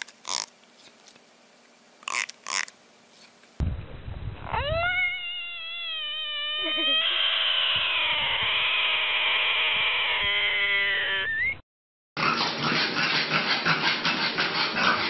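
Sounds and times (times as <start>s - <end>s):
frog distress scream: 4.5s - 11.6s.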